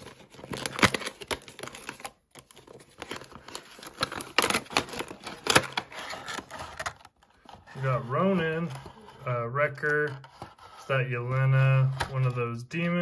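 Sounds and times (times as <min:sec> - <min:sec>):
packaging clicks and rustles: 0:00.0 - 0:09.2.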